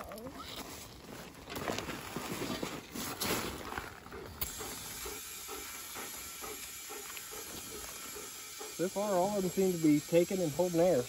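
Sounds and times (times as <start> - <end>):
rustling and handling noise: 0.0 - 4.4
compressed air hissing into tire: 4.4 - 11.0.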